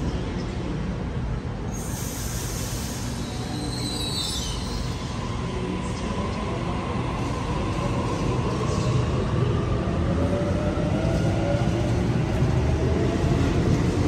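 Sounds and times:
air hiss: 1.7 - 4.3
high squeal: 1.7 - 5.2.

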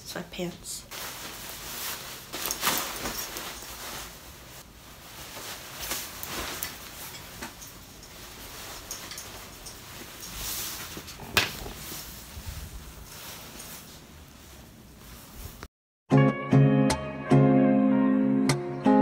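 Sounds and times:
nylon jacket rustling: 0.9 - 15.7.

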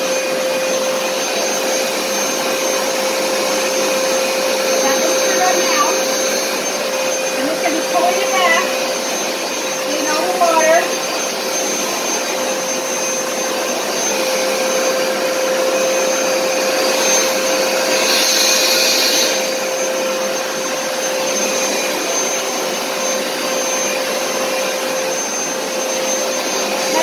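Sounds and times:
carpet cleaner hissing: 0.0 - 27.0
carpet cleaner motor hum: 0.0 - 27.0.

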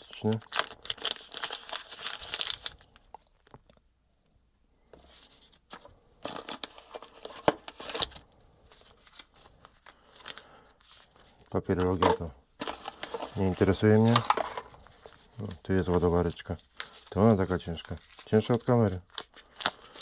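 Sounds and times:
packaging rustling: 0.0 - 3.8, 5.1 - 20.0
plastic bag crinkling and tearing: 0.0 - 3.8, 12.6 - 20.0.

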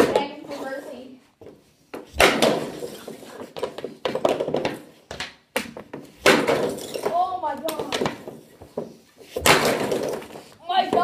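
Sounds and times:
hockey stick hitting puck: 0.0 - 0.6, 2.0 - 11.0
pucks striking hard surfaces: 0.0 - 0.6, 1.9 - 11.0.

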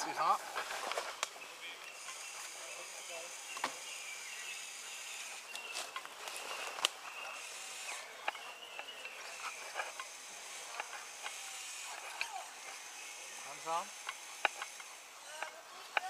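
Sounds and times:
leaf litter crackling: 5.5 - 7.0.

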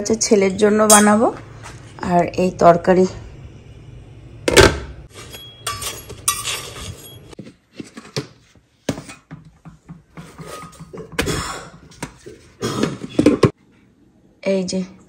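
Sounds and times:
person coughing: 11.2 - 11.8.

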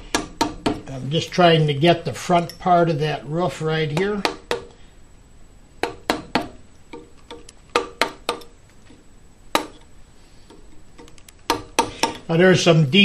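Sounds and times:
mallet striking a chisel: 0.1 - 0.8, 3.9 - 4.8, 5.8 - 8.5, 9.5 - 9.8, 11.5 - 12.2.

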